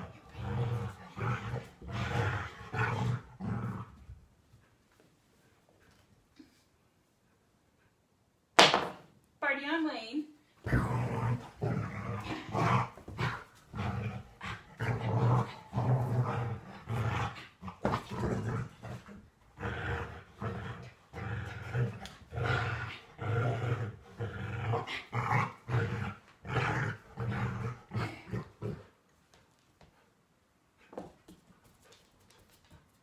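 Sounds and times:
dog growling in play: 0.0s - 4.2s, 10.6s - 29.0s.

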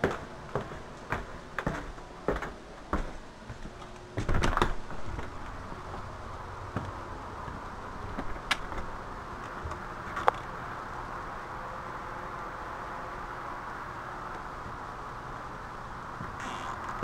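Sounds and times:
outdoor background hiss: 0.0s - 17.0s
door opening with knocks and clicks: 4.2s - 5.4s.

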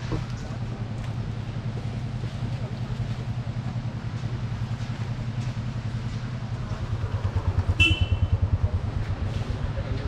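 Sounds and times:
engine idling: 0.0s - 10.0s.

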